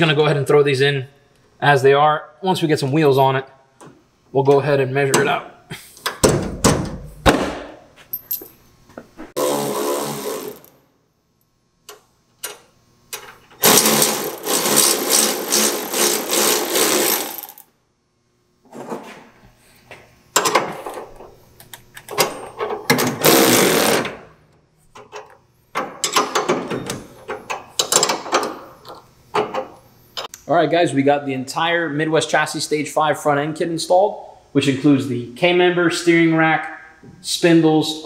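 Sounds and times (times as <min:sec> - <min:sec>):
cordless ratchet running: 0:13.6 - 0:17.6.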